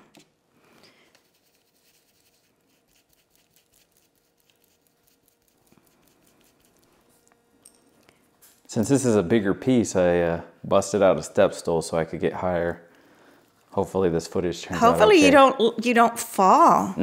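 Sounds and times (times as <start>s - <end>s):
stencil brush dabbing paint: 1.2s - 6.8s.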